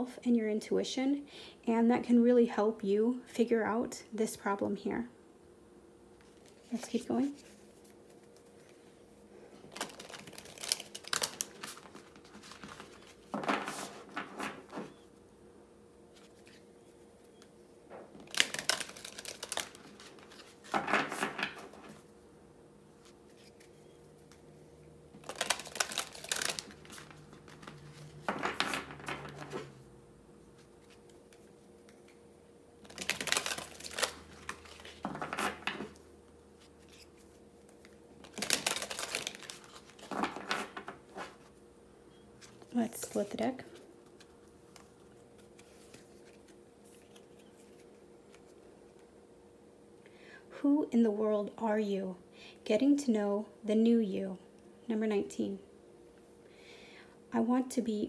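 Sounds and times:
cards being shuffled: 9.6 - 15.0, 16.1 - 22.1, 23.0 - 24.5, 25.2 - 29.8, 30.6 - 32.2, 32.8 - 41.5, 42.4 - 49.1.

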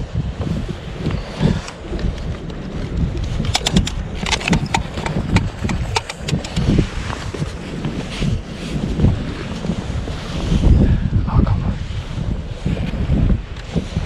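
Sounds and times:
wind buffeting microphone: 0.0 - 14.0
sharp clicks: 3.4 - 6.7.

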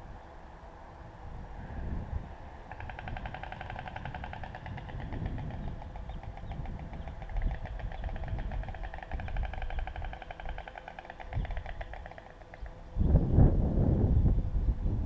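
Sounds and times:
storks clattering bills: 2.7 - 12.8.

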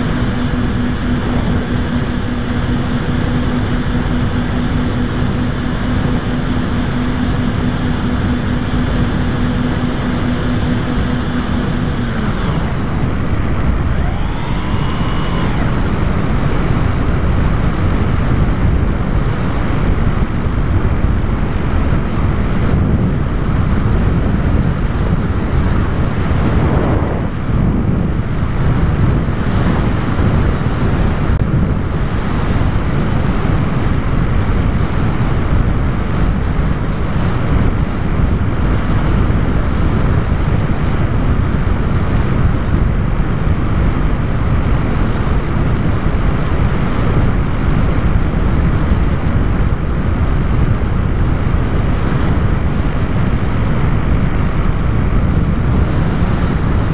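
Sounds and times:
model plane propeller: 0.0 - 18.4
wind rushing on microphone: 0.0 - 56.9.

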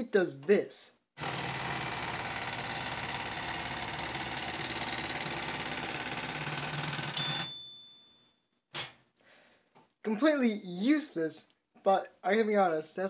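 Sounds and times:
typewriter carriage bell: 4.2 - 8.4.

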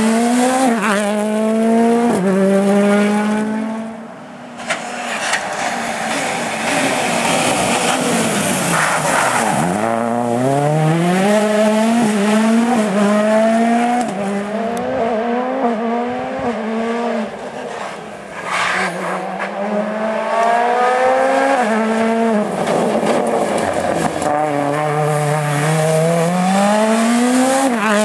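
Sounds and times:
rally car engine accelerating: 0.0 - 4.0, 5.2 - 17.4, 18.6 - 28.0
car braking: 4.5 - 12.9.

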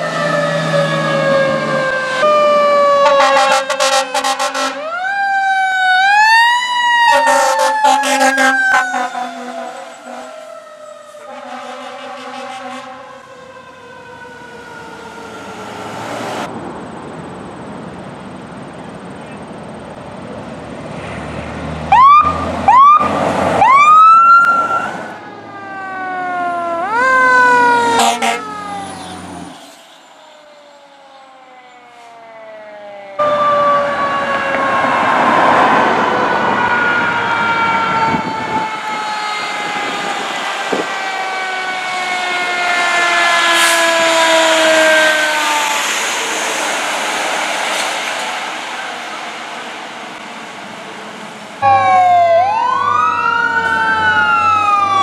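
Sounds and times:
siren whoops: 0.0 - 16.4, 21.9 - 46.9, 51.6 - 55.0
siren wailing: 0.0 - 16.5, 21.9 - 47.6, 51.6 - 55.0.

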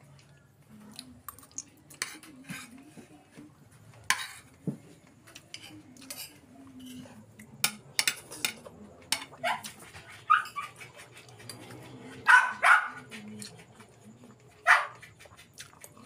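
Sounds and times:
cutlery clinking on bowls: 4.0 - 4.5, 5.3 - 11.9.

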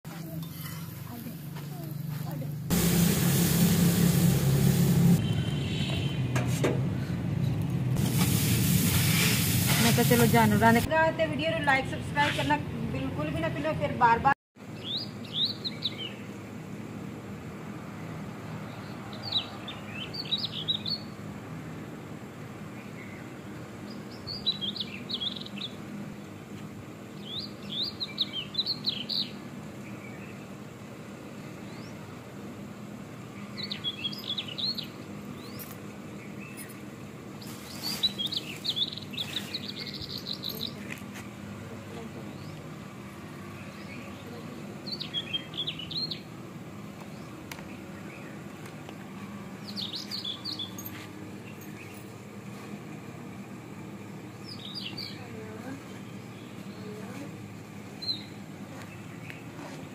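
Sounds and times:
birds twittering: 14.7 - 16.4, 18.7 - 21.2, 22.7 - 25.8, 27.2 - 30.6, 33.3 - 36.8, 37.4 - 40.8, 43.4 - 46.3, 47.0 - 48.6, 49.6 - 52.2, 54.2 - 59.6.

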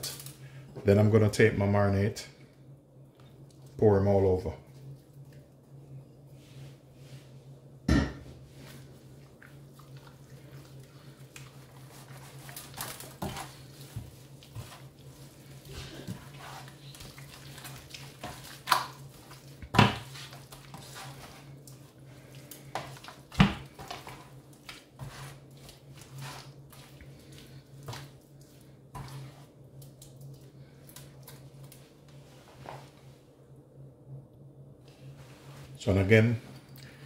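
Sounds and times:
low steady hum: 0.0 - 37.0
hands rubbing wet marinade on meat: 8.5 - 33.2.

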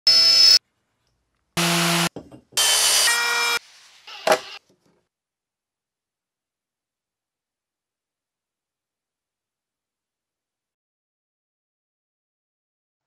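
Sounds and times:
power tool whining: 1.6 - 4.6.

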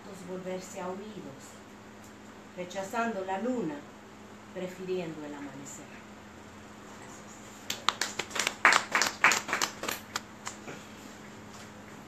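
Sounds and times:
small audience clapping: 7.6 - 10.7.

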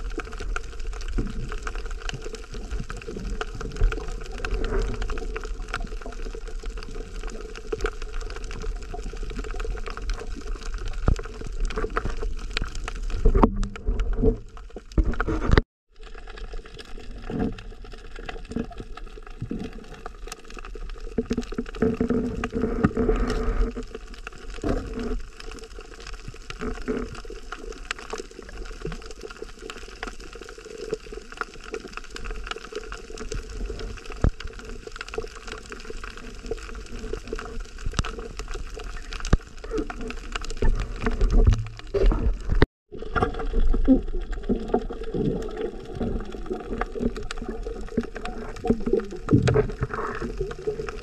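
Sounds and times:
small clicks and crackles: 0.0 - 51.0
muffled underwater gurgling: 33.3 - 51.0.

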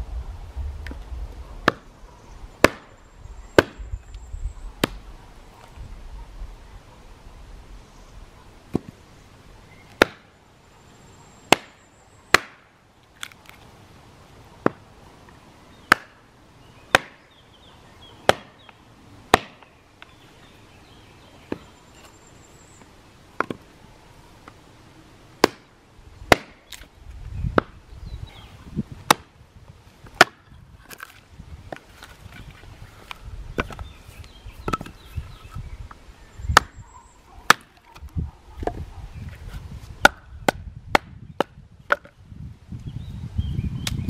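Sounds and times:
hatchet chopping logs: 1.6 - 1.9, 2.6 - 3.0, 3.6 - 3.8, 4.8 - 5.0, 8.7 - 9.0, 9.9 - 10.3, 11.5 - 13.6, 14.6 - 14.9, 15.8 - 16.2, 16.9 - 17.3, 18.2 - 19.7, 23.4 - 23.7, 25.4 - 26.9, 27.5 - 27.8, 29.0 - 29.3, 30.0 - 32.1, 33.0 - 33.9, 34.6 - 35.0, 36.5 - 36.8, 37.5 - 38.8, 40.0 - 42.1.

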